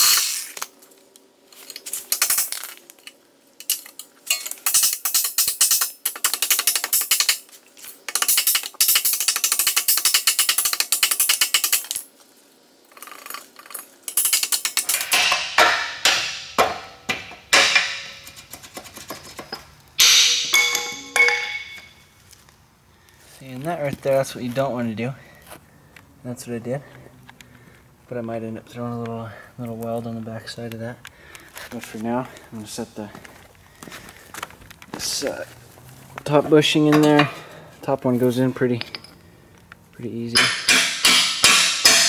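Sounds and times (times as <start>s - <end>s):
metal knocks and rattling: 14.2s - 22.0s.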